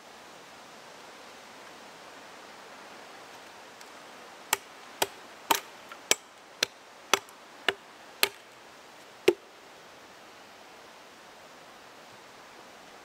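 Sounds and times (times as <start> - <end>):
axe chopping wooden pole: 4.5 - 8.4.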